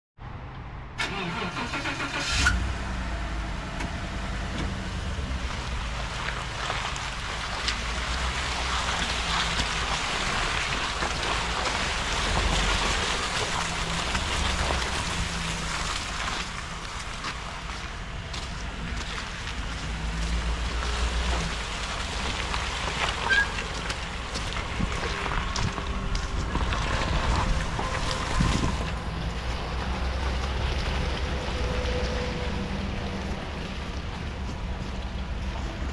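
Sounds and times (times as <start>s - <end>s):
wind over microphone: 24.6s - 29.2s.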